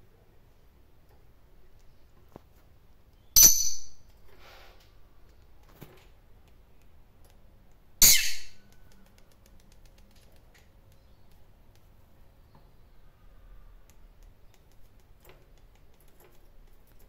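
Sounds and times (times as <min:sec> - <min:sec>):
lovebird shrill chirps: 0:08.0 - 0:08.6.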